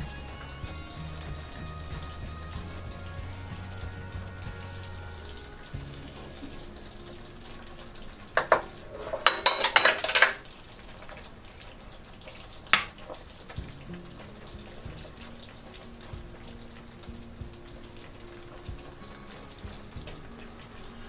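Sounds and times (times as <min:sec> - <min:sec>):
food sizzling in a frying pan: 0:00.0 - 0:21.0
ceramic plates clattering: 0:08.4 - 0:10.4.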